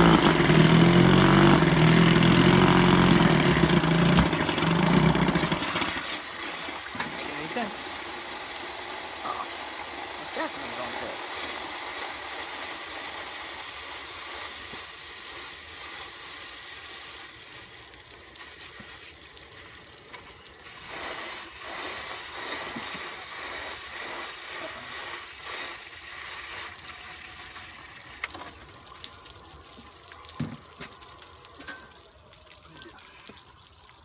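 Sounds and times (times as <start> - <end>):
water gurgling and trickling: 3.3 - 11.0, 25.8 - 34.0.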